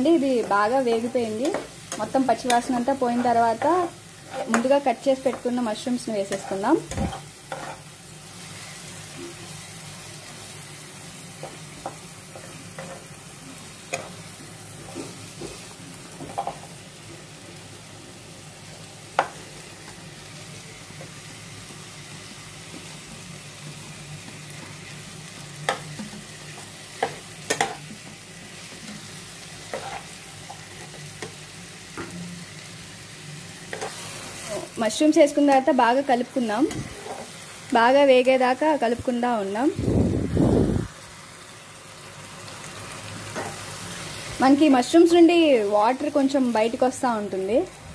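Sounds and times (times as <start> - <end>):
onion sizzling in oil: 0.0 - 47.9
spatula scraping pan: 0.2 - 5.5, 6.2 - 7.9, 28.6 - 31.3, 36.7 - 37.4.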